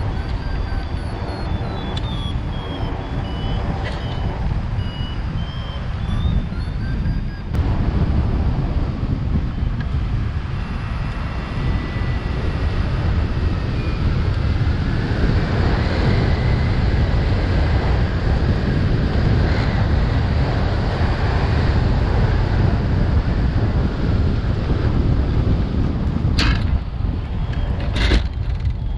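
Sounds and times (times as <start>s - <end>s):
drone motors whining: 0.0s - 7.9s, 9.0s - 17.3s, 26.4s - 28.9s
wind buffeting microphone: 0.0s - 28.9s.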